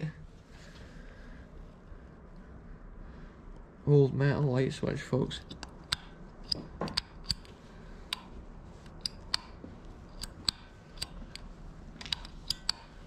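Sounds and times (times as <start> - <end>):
light switch clicking: 5.5 - 7.5, 8.9 - 11.4, 12.1 - 13.0.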